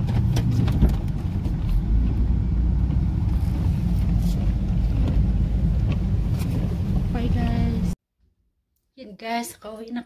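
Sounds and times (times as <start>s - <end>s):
road noise: 0.0s - 8.0s
vehicle engine rumble: 0.0s - 8.0s.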